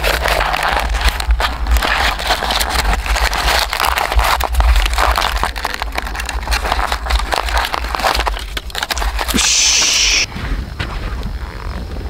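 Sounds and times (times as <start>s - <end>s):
thin wood sheets crinkling: 0.0s - 9.4s.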